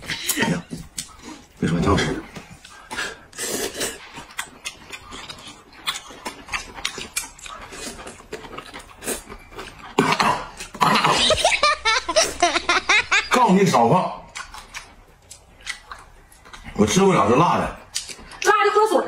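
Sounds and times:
people slurping noodles: 0:00.0 - 0:05.6, 0:07.0 - 0:12.5
chewing mouth noises: 0:02.3 - 0:11.0, 0:14.2 - 0:17.0.

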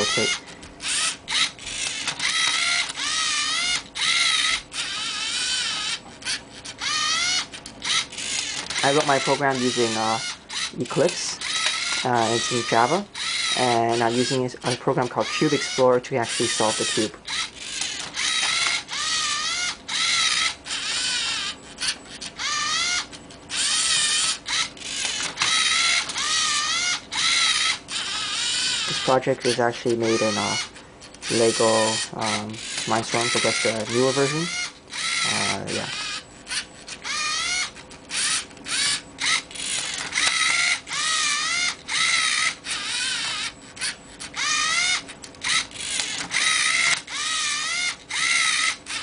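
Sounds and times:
servo motors whining: 0:00.0 - 0:49.0.

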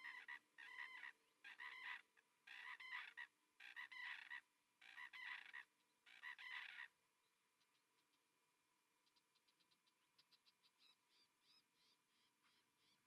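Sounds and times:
plovers calling: 0:00.0 - 0:06.9.

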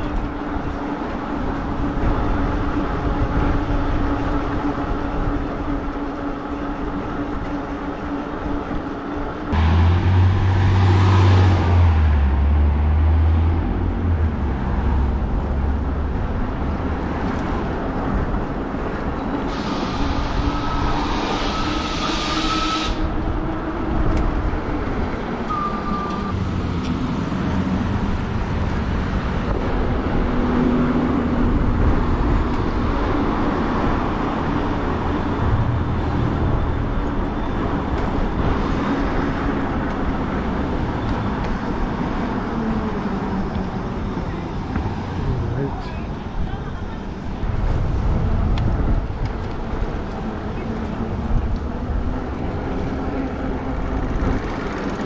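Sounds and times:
passing traffic noise: 0:00.0 - 0:55.0
heavy vehicle engine rumble: 0:23.0 - 0:55.0.

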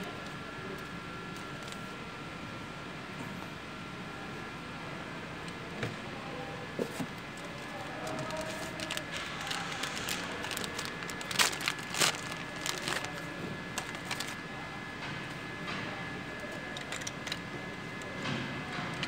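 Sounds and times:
plastic bag crinkling: 0:07.4 - 0:14.4.

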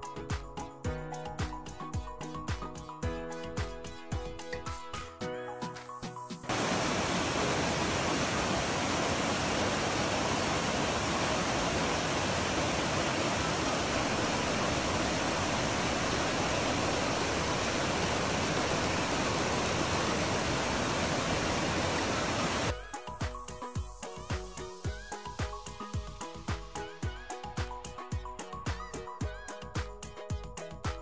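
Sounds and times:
music: 0:00.0 - 0:31.0
waterfall rushing: 0:06.5 - 0:22.7.

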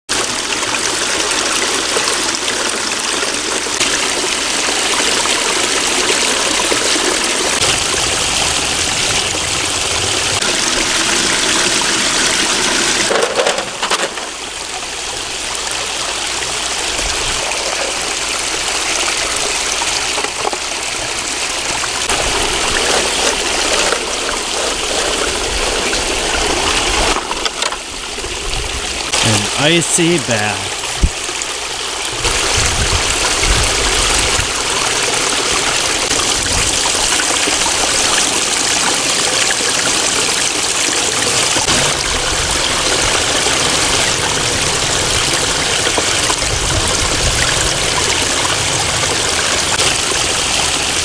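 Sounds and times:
small waterfall splashing: 0:00.1 - 0:51.0.

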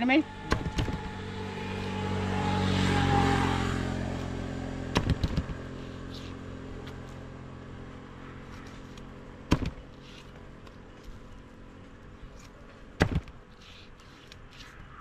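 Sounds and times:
vehicle engine passing by: 0:00.0 - 0:09.4
sharp knocks: 0:00.5 - 0:01.1, 0:04.9 - 0:05.6, 0:09.5 - 0:09.8, 0:13.0 - 0:13.4.

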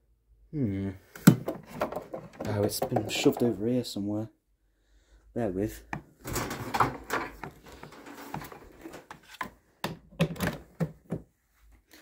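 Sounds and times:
cables rustling and scraping: 0:06.2 - 0:09.7.

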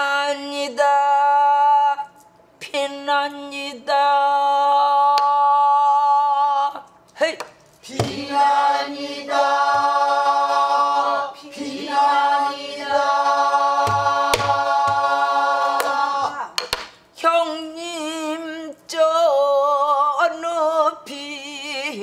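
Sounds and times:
voices singing long held notes: 0:08.0 - 0:16.4
barrel drum struck by stick: 0:13.8 - 0:15.1.

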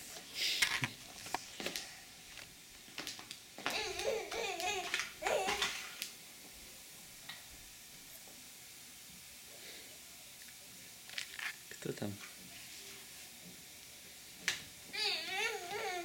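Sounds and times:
baby babbling: 0:03.7 - 0:05.8, 0:14.9 - 0:16.0.

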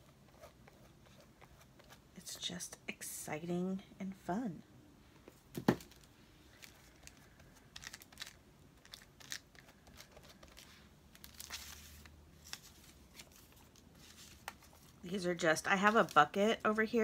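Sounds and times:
paper rustling and crinkling: 0:05.5 - 0:16.8.

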